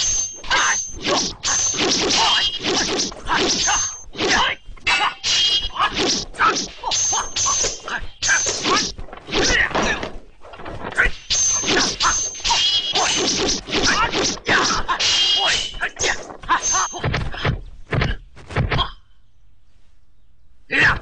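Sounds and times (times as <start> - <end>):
swords clashing: 0.0 - 10.2, 10.9 - 17.4
punches and blows: 0.5 - 4.6, 5.6 - 6.8, 7.4 - 19.0.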